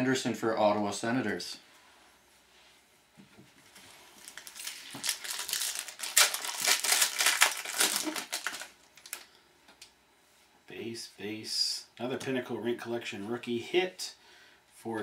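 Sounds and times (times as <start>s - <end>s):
foil wrapper tearing and crinkling: 4.2s - 9.3s.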